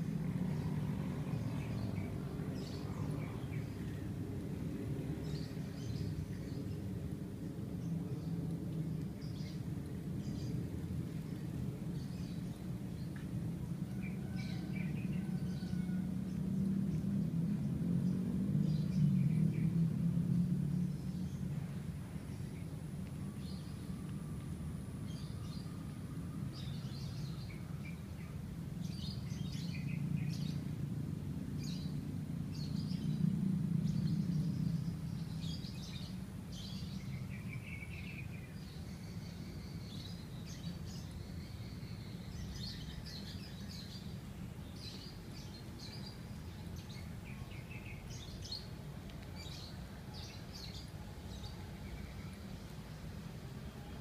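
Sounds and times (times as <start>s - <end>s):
small birds chirping: 0.0s - 30.8s, 31.4s - 54.0s
distant city traffic rumble: 0.0s - 54.0s.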